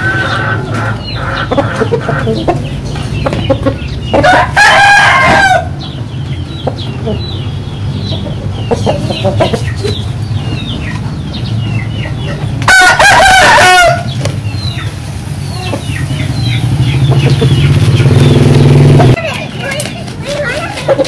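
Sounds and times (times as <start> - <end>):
rooster crowing: 4.2 - 5.8, 12.7 - 14.1.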